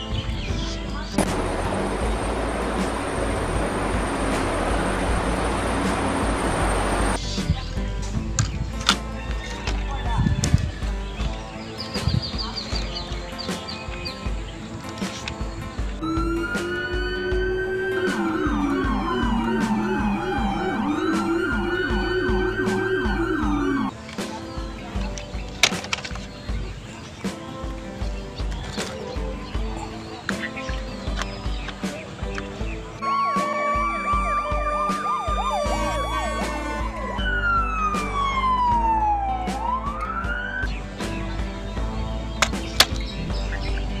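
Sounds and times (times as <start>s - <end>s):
background music with low beat: 0.0s - 44.0s
electronic toy siren wailing: 16.0s - 23.9s, 33.0s - 40.7s.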